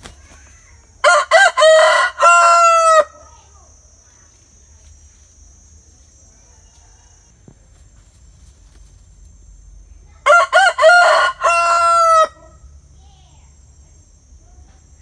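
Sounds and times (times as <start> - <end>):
rooster crowing: 1.0 - 3.2, 6.4 - 7.4, 10.2 - 12.7.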